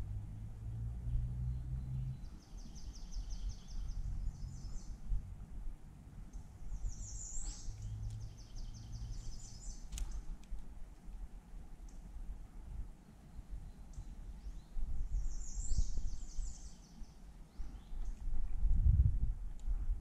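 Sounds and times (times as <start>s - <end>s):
low background rumble: 0.0s - 20.0s
songbirds singing trills: 1.1s - 5.4s, 6.2s - 10.5s, 13.0s - 18.3s.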